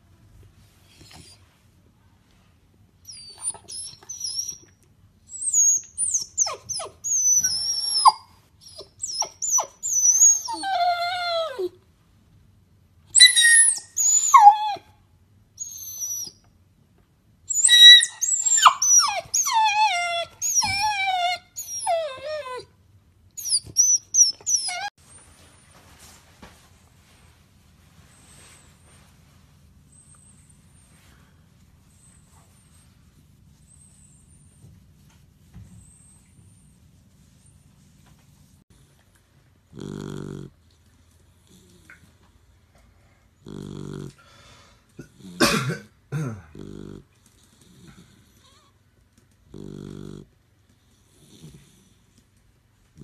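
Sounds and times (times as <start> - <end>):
puppy whining and yelping: 3.0 - 11.8, 13.1 - 15.0, 15.6 - 16.5, 17.5 - 25.0.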